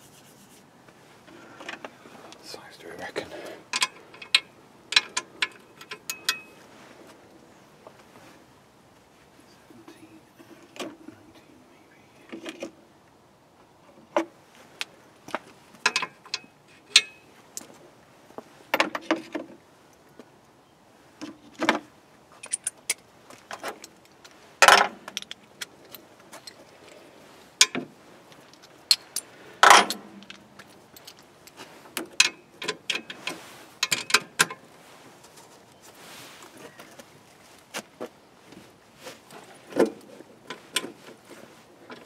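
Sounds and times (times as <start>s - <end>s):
metal tools clinking: 3.7s - 6.6s, 15.9s - 17.2s, 22.4s - 23.0s, 28.9s - 31.2s.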